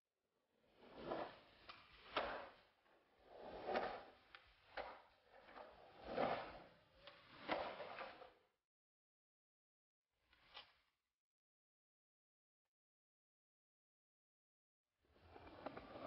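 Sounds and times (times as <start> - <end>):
skateboard wheels rolling on concrete: 0.6 - 8.4, 15.1 - 16.0
skateboard clacking: 3.3 - 6.4.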